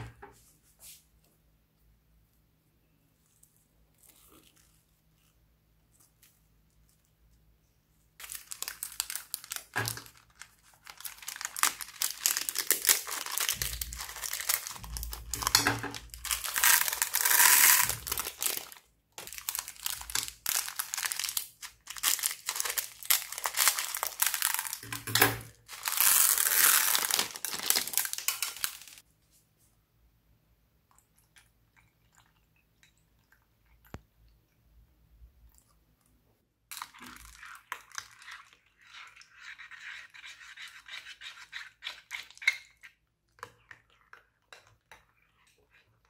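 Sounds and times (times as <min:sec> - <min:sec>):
plastic bag of beads crinkling: 0:08.2 - 0:29.0.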